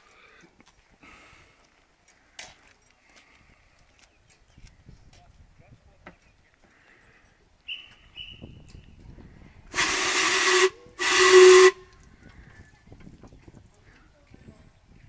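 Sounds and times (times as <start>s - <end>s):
steam whistle blasts: 9.8s - 11.9s.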